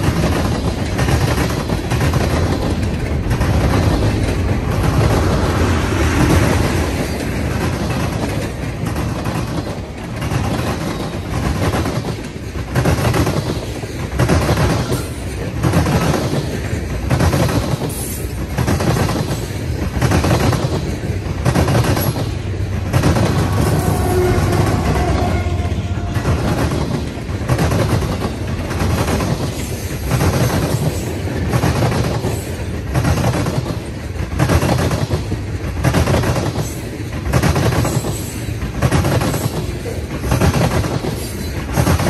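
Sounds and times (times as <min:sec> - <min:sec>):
diesel locomotive tone: 0:00.0 - 0:09.2, 0:20.8 - 0:29.0
train wheels rumbling on rail: 0:00.0 - 0:42.0
wheels clacking over rail joints: 0:00.0 - 0:42.0.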